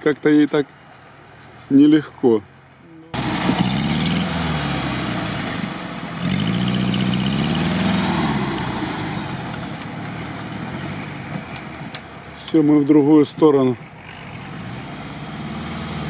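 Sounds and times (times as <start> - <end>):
car engine revving: 3.1 - 12.4, 13.6 - 16.0.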